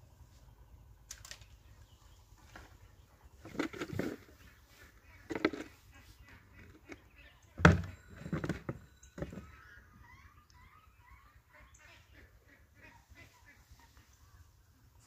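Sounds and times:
plastic crate knocking: 7.6 - 9.4.

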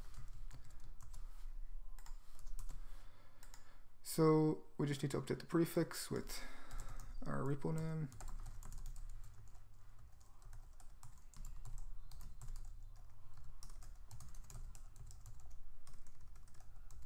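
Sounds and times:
computer keyboard typing: 0.0 - 1.3, 2.0 - 2.8, 3.4 - 3.7, 6.7 - 17.0.

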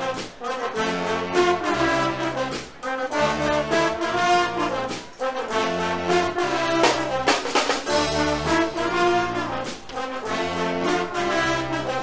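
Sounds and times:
brass band playing: 0.0 - 12.0
bass drum: 6.7 - 9.9.

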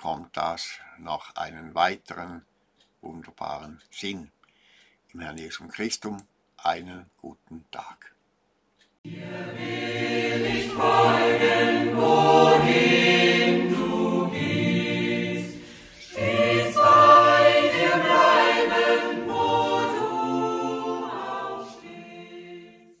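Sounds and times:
choir singing a hymn: 9.1 - 23.0.

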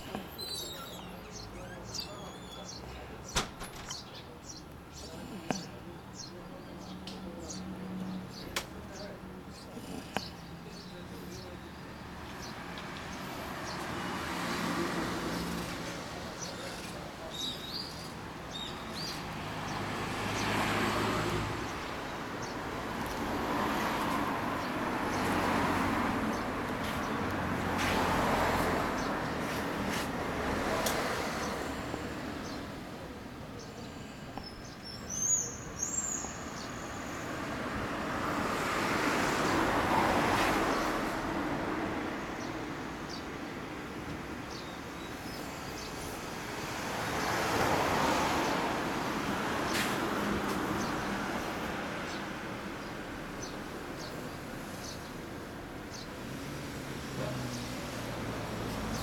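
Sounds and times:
vehicles passing: 0.0 - 59.0
bird chirps: 0.1 - 2.9.

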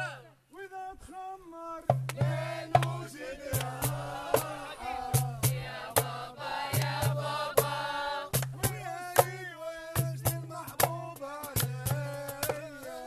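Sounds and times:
voices singing together: 1.9 - 13.0.

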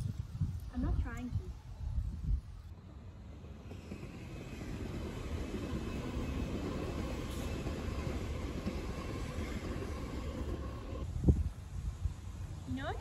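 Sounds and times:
train wheels rumbling on rails: 2.8 - 11.6.

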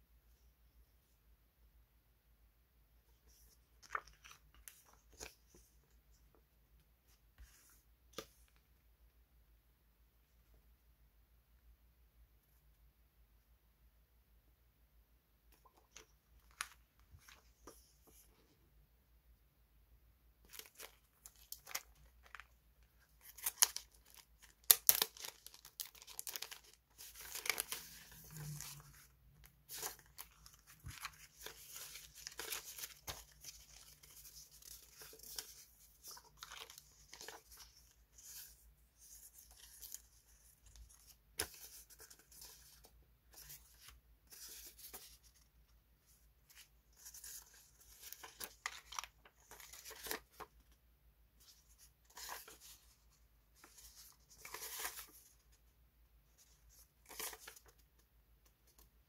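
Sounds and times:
plastic sleeves crinkling: 20.4 - 22.6, 23.2 - 38.6.

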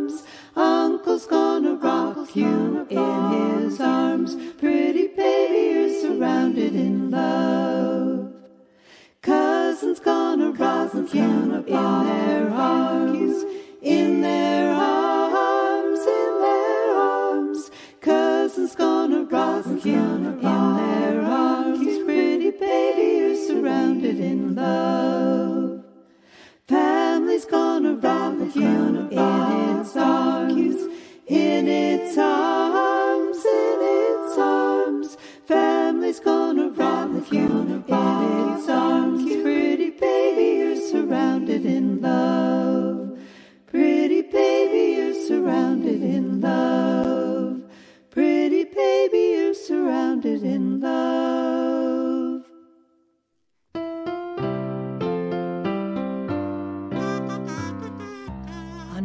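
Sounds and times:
a cappella singing: 0.0 - 53.1.

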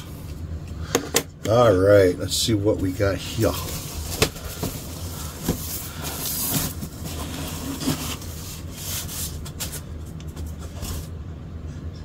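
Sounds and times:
packing paper rustling: 3.2 - 11.1
cardboard lid sliding: 5.4 - 9.3.

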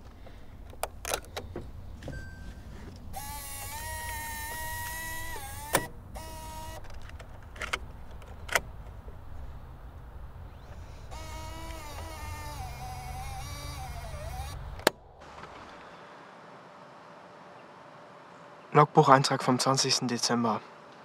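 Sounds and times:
camcorder motor whirring: 3.2 - 6.8, 10.6 - 14.7.

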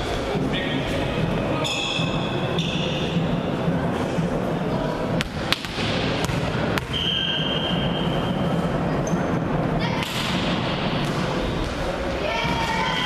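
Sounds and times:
echoing murmur of hall: 0.0 - 13.0
volleyball bouncing on floor: 5.2 - 7.4
referee's whistle: 6.9 - 8.0.

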